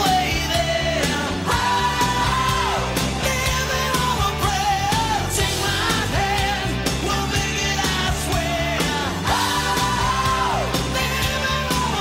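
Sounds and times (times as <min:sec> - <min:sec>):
rock song with singing: 0:00.0 - 0:12.0.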